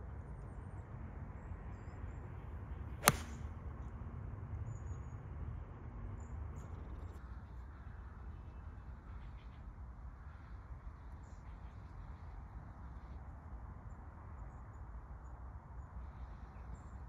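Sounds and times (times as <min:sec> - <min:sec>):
golf club striking ball: 0:03.0 - 0:03.4.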